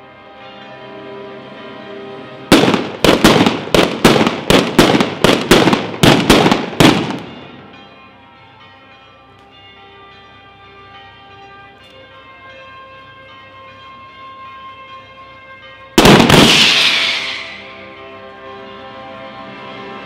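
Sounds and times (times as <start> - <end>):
bells ringing: 0.0 - 20.0
firecrackers banging: 2.5 - 7.7, 16.0 - 17.8.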